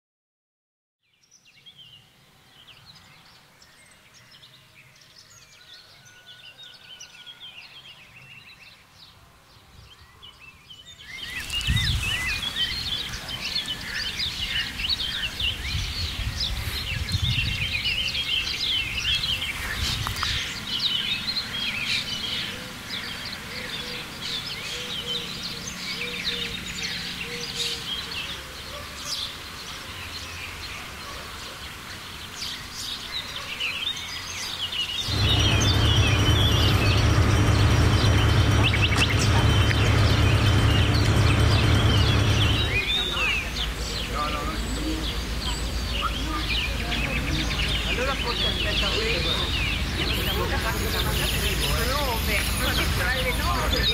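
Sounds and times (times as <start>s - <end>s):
outdoor background noise: 1.0s - 53.9s
birds chirping: 1.1s - 53.9s
low rumble: 35.0s - 43.9s.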